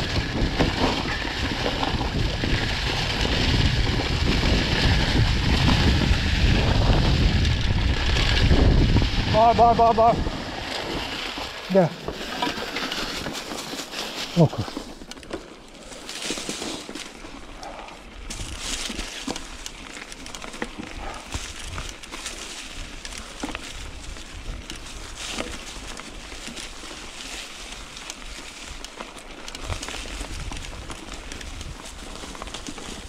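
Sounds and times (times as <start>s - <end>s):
wind rumble on microphone: 0.0s - 12.2s, 20.8s - 28.9s, 29.5s - 33.0s
bicycle tyres crunching over leaves: 0.0s - 33.0s.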